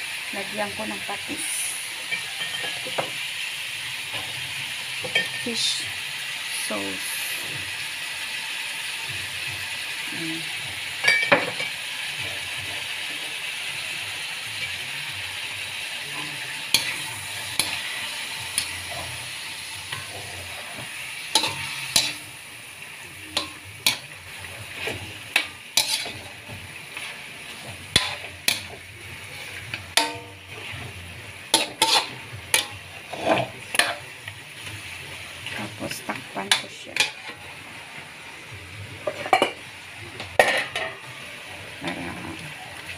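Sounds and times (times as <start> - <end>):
chicken sizzling in wok: 0.0 - 42.9
metal spatula scraping wok: 11.0 - 37.6.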